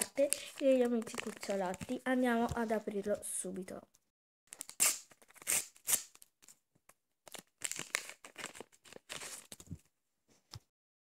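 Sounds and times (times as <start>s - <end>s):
wrapper crinkling and tearing: 0.0s - 2.0s, 7.3s - 9.8s.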